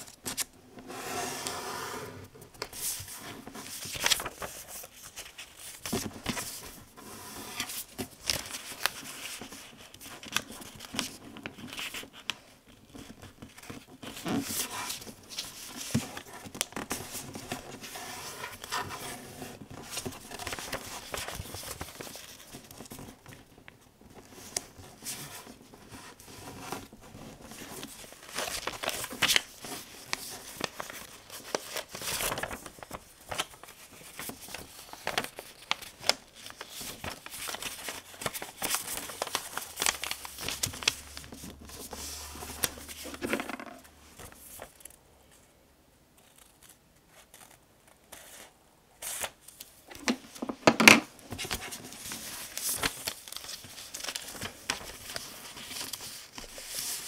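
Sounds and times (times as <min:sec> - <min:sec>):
paper crinkling and rustling: 0:02.4 - 0:45.4, 0:46.2 - 0:57.0
sharp clicks of paper folds: 0:27.7 - 0:45.0, 0:49.0 - 0:57.0.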